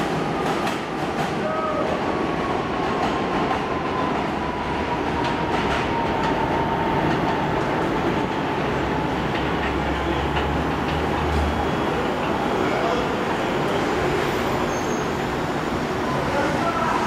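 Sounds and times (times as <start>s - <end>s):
train wheels rumbling on rail: 0.0s - 17.0s
rail joint clicks: 5.2s - 12.5s.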